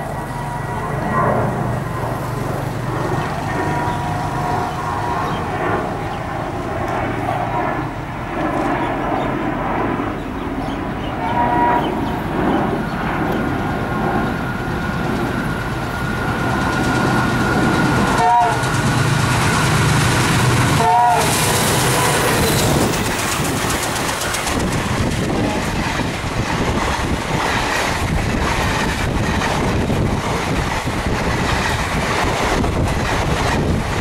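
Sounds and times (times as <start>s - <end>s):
train rolling noise: 0.0s - 8.8s, 10.1s - 34.0s
diesel locomotive engine drone: 0.0s - 34.0s
train horn: 11.1s - 12.1s, 18.1s - 19.3s, 20.4s - 22.9s.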